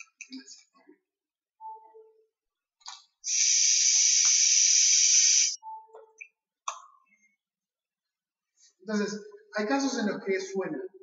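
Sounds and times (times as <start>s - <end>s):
loud steady hiss: 3.3s - 5.6s.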